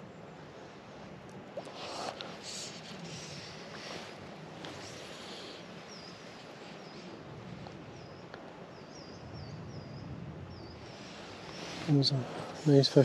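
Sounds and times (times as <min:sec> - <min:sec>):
small bird chirping: 0:04.8 - 0:07.1.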